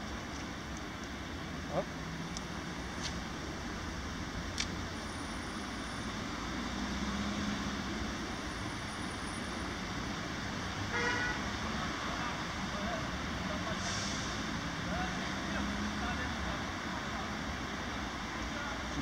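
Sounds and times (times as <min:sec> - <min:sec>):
road traffic hum: 0:00.0 - 0:19.0
car horn toot: 0:10.9 - 0:11.4.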